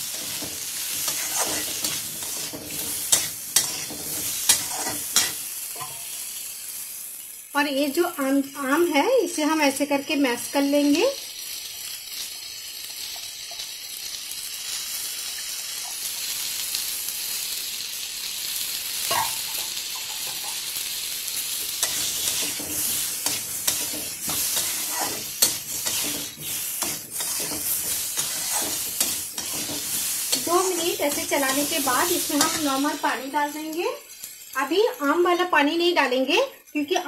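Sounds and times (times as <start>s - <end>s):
metal spatula scraping a pan: 0.0s - 6.2s, 21.6s - 33.0s
pumpkin frying in oil: 0.0s - 37.0s.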